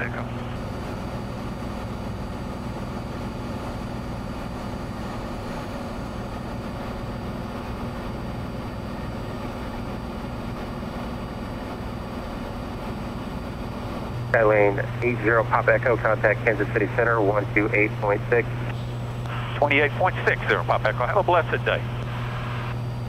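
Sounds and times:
plane engine and propeller drone: 0.0s - 23.0s.

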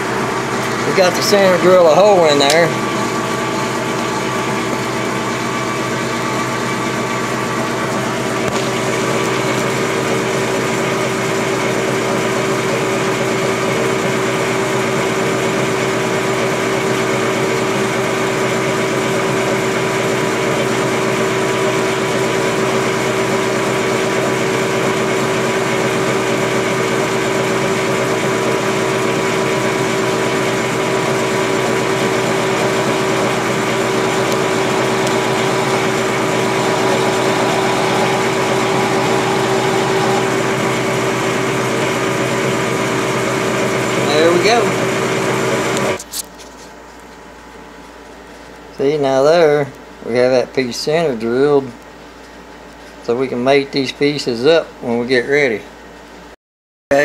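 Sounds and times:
metal lathe running: 0.0s - 12.4s, 21.0s - 45.8s.

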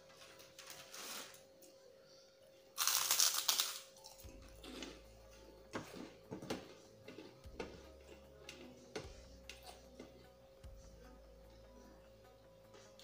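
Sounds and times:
cracker crunching: 2.8s - 5.0s.

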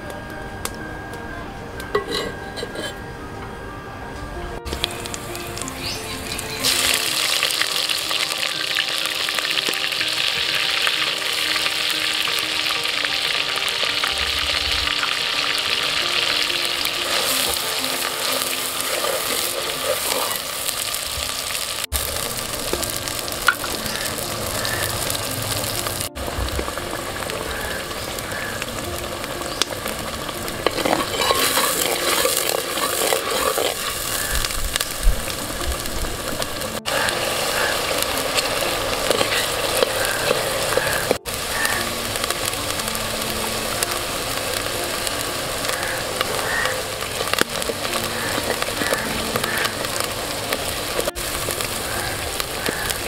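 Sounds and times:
paste sizzling in hot oil: 4.7s - 53.0s
spoon stirring and scraping: 18.7s - 20.8s, 30.6s - 34.3s, 38.3s - 41.1s.

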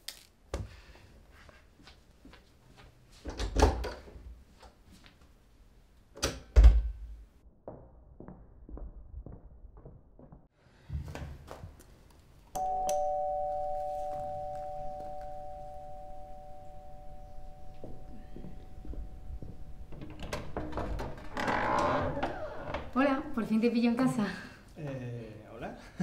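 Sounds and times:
doorbell click: 12.6s - 19.9s
two-tone electric doorbell: 12.6s - 19.9s.

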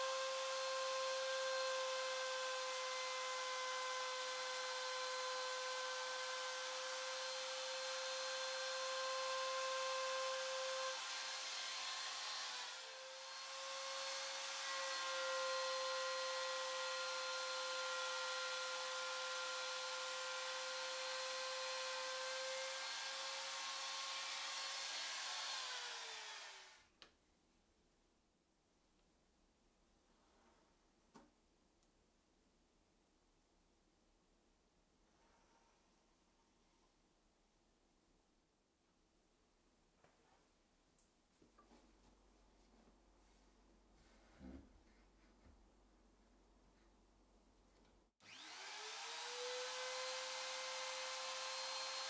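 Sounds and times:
trim router whining: 0.0s - 26.8s, 48.2s - 52.0s.

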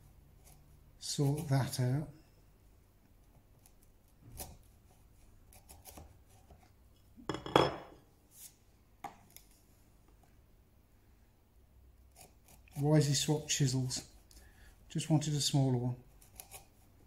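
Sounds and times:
chisel scraping wood: 12.1s - 13.3s.

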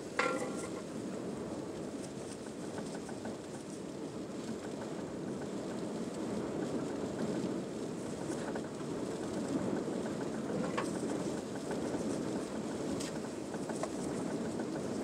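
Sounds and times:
rain pattering on car roof: 1.8s - 15.0s.

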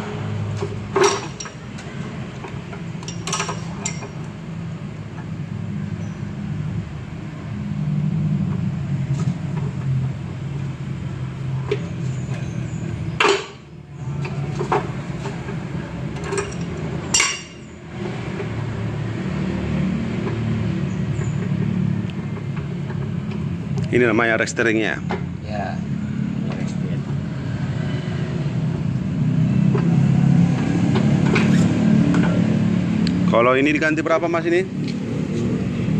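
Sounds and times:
metal tools clinking: 1.0s - 1.9s, 3.0s - 4.2s, 16.2s - 17.6s.

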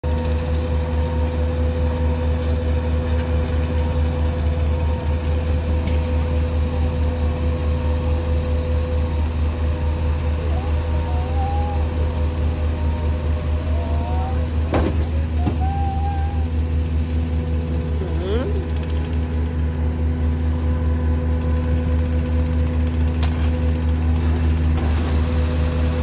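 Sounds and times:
excavator engine hum: 0.0s - 26.0s
jackhammer breaking pavement: 21.4s - 26.0s.

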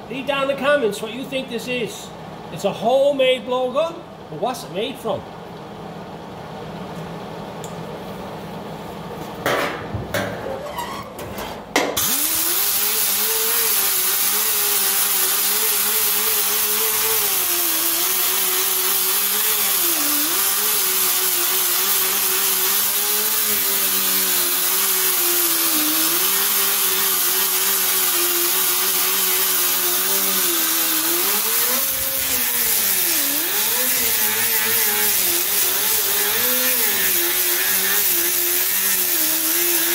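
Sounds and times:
pneumatic cut-off tool cutting steel: 12.0s - 39.9s
air disc grinding metal panel: 13.7s - 39.9s.

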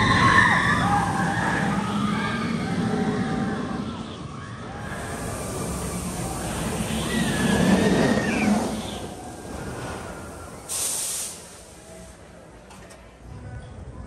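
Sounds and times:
roller coaster train rushing on track: 0.0s - 13.9s
short hiss: 9.4s - 12.1s.

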